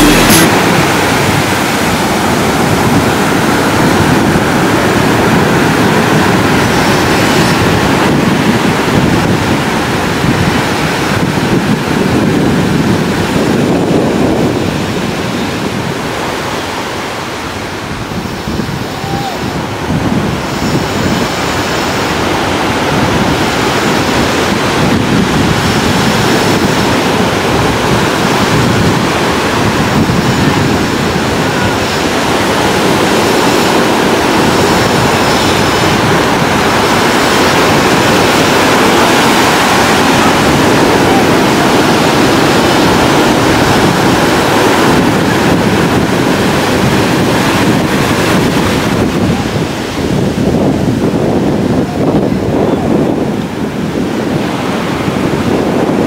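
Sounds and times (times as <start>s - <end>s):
ocean surf breaking: 0.0s - 56.0s
wind buffeting microphone: 0.0s - 56.0s.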